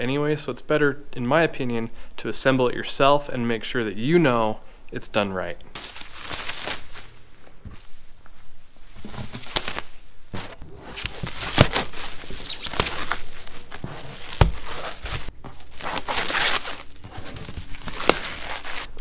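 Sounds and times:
sharp plastic wrap snaps: 5.8s - 7.1s, 9.3s - 10.0s, 11.0s - 19.0s
stretch wrap crinkling and tearing: 5.8s - 8.2s, 8.9s - 19.0s.

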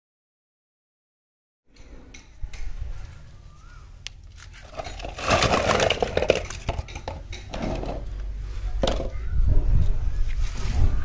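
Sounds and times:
toy cars clattering: 4.4s - 8.2s.

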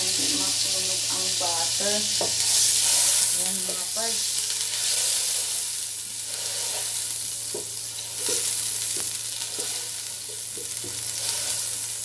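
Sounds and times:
butter sizzling in a pot: 0.0s - 12.0s
wooden spoon scraping a pot: 4.6s - 5.6s, 6.2s - 7.0s, 7.9s - 8.6s.

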